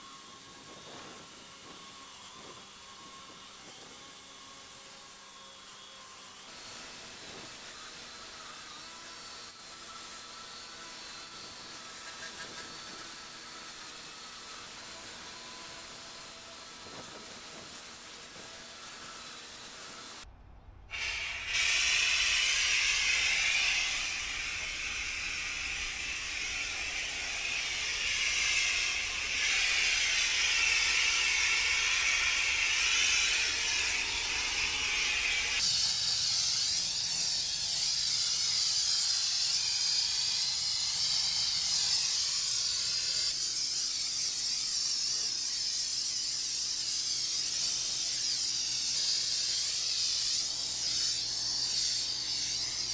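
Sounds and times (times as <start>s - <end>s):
pressure washer spray hissing: 21.0s - 52.9s.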